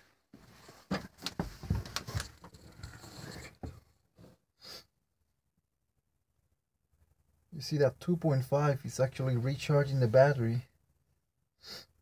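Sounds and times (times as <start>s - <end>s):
camera handling knocks and rustles: 0.9s - 2.6s.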